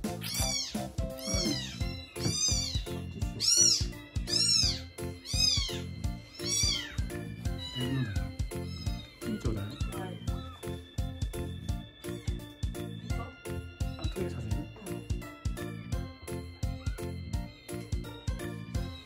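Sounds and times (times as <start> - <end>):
background music: 0.0 - 19.0
kitten meowing loudly: 0.2 - 10.5.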